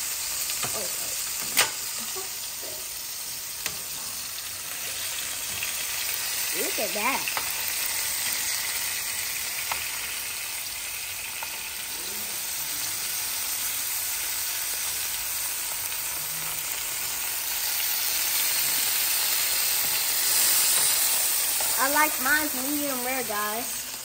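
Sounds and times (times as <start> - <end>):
steak sizzling in a frying pan: 0.0 - 24.0.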